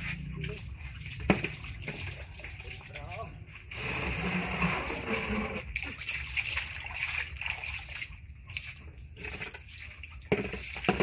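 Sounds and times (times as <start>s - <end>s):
water sloshing in plastic tub: 0.0s - 11.0s.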